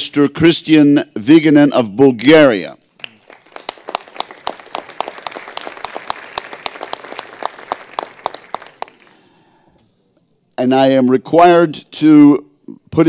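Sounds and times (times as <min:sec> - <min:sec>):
audience applause: 0:03.0 - 0:09.3.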